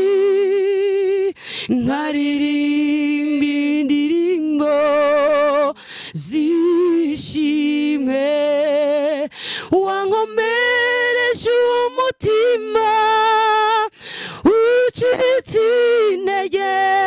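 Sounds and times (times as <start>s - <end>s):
woman singing unaccompanied: 0.0s - 17.0s
woman breathing: 1.4s - 1.7s, 5.8s - 6.2s, 9.3s - 9.7s, 13.9s - 14.4s.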